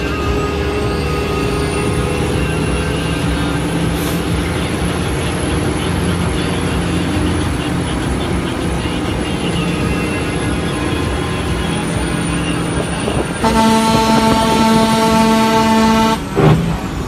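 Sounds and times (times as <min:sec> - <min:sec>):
truck diesel engine running: 0:00.0 - 0:17.0
truck air horn blast: 0:13.3 - 0:16.6.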